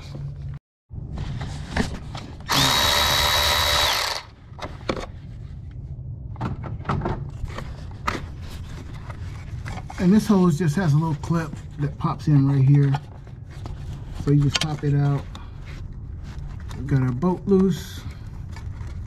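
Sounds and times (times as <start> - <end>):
electric ratchet whirring: 2.5 - 4.3.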